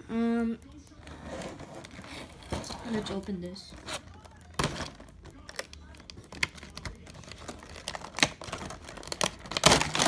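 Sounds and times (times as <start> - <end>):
plastic packaging clicks and snaps: 4.1 - 10.0.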